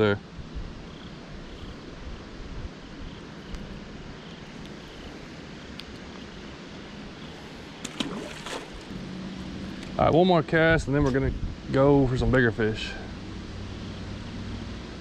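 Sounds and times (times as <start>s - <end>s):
outdoor background noise: 0.0s - 15.0s
faint clicks of fishing line: 5.7s - 6.2s.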